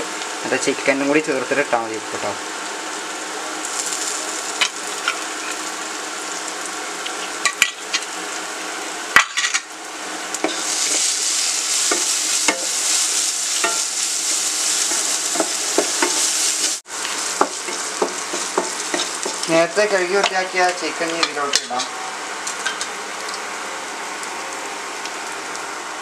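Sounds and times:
food sizzling in pan: 0.0 - 26.0
spatula scraping pan: 14.6 - 21.9.

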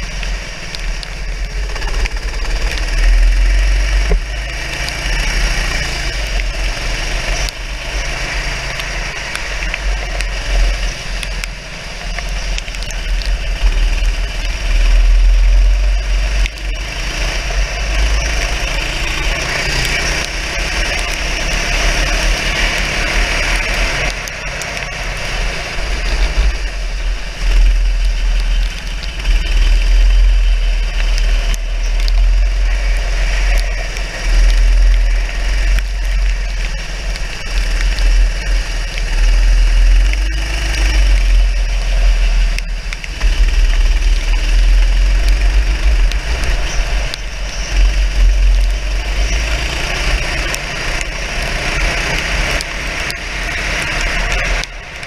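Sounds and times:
kart engine revving: 16.3 - 26.3, 43.0 - 55.0.

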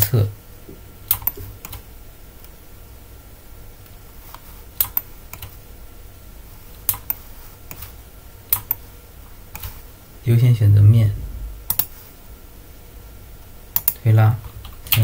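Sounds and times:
faint low hum: 0.0 - 15.0
mouse and keyboard clicks: 1.1 - 1.8, 4.3 - 5.5, 8.5 - 8.8, 11.7 - 11.9.

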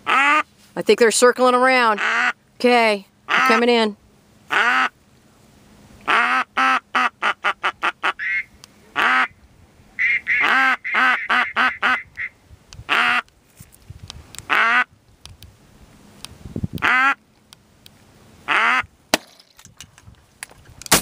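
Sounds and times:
duck call quacking: 0.0 - 0.5, 2.0 - 2.4, 3.3 - 3.8, 4.5 - 5.0, 6.0 - 9.4, 10.0 - 13.3, 14.5 - 14.9, 16.8 - 17.2, 18.5 - 18.9.

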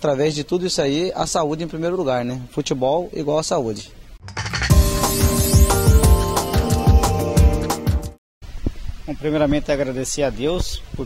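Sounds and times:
background music with drum beat: 4.2 - 8.2.

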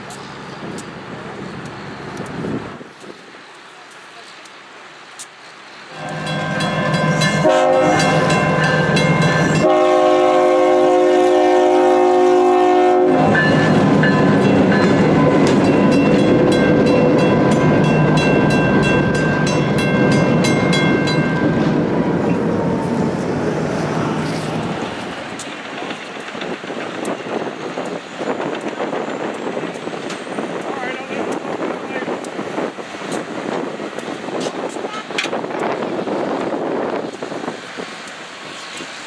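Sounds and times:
locomotive engine rumbling: 0.0 - 39.0
locomotive horn: 5.9 - 17.8
wheels clattering on rails: 13.3 - 22.4, 24.3 - 39.0.

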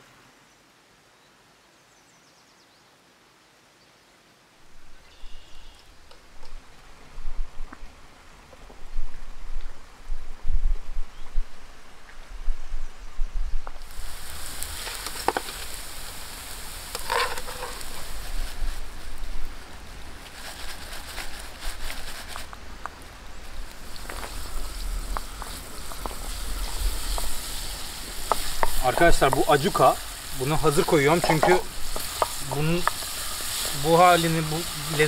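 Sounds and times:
oil sizzling in frying pan: 13.8 - 22.5, 23.4 - 35.0.

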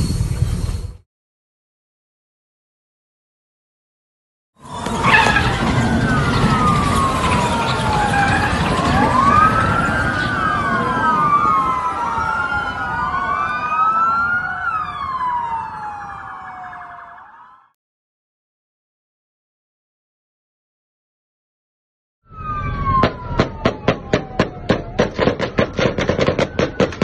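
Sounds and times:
police sirens wailing: 4.6 - 17.8, 22.3 - 27.0.

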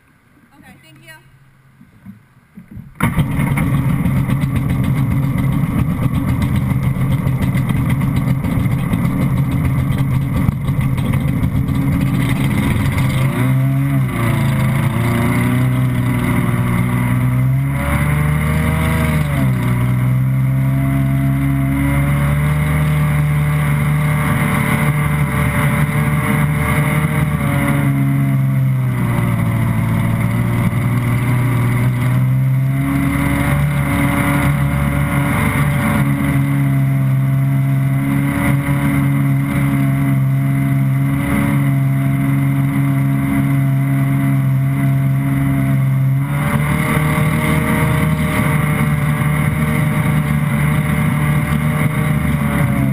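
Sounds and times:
jet ski engine running: 1.8 - 52.9.

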